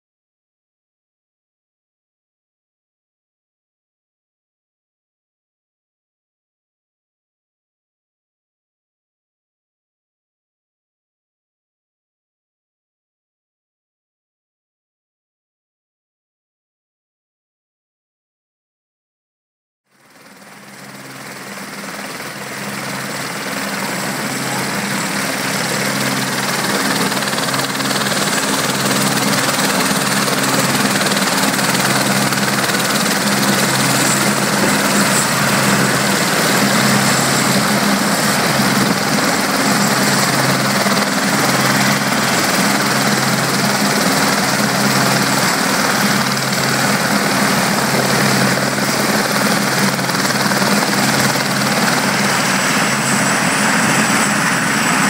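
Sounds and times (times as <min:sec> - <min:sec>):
helicopter rotor beat: 0:19.9 - 0:55.0
helicopter turbine whine: 0:19.9 - 0:55.0.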